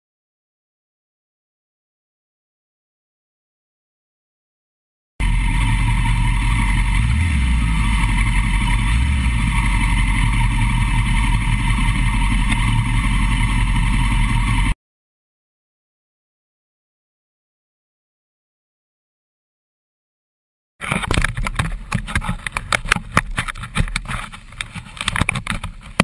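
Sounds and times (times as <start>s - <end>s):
loud machine running: 5.2s - 14.8s.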